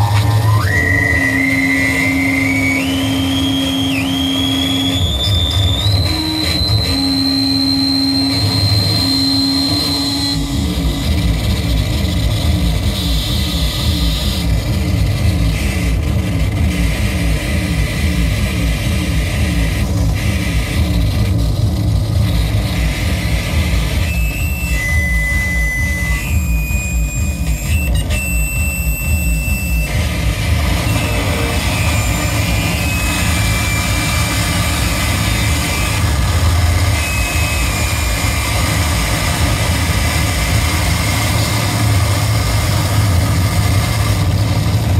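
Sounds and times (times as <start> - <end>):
high electronic tones: 0.0 - 14.9, 22.2 - 43.5
fast pulsing low rumble: 0.0 - 44.9
harsh distorted noise music: 0.0 - 44.9.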